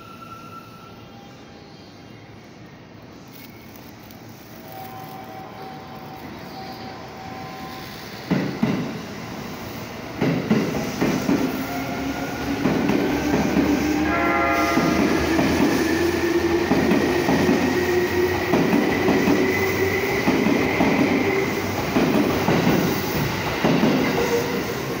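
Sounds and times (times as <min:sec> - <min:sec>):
brief whistle-like tone: 0:04.7 - 0:08.2.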